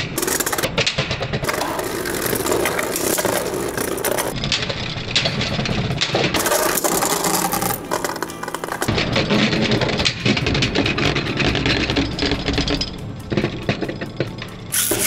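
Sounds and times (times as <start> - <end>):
spinning tops scraping on plastic: 0.0 - 0.7, 1.4 - 4.4, 6.4 - 9.0, 14.7 - 15.0
spinning tops clicking together: 14.7 - 15.0.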